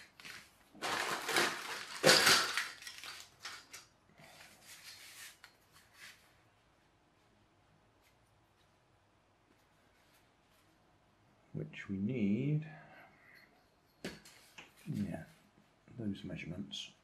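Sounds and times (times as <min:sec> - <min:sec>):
paper rustling: 0:00.0 - 0:03.8.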